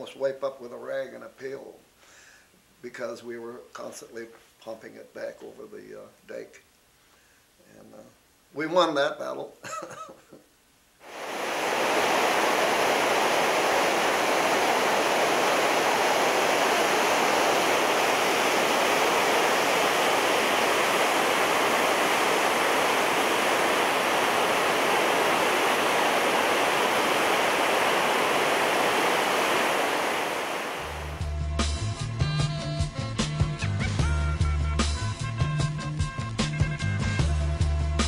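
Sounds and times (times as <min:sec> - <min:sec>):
river rushing over rapids: 0:11.0 - 0:31.2.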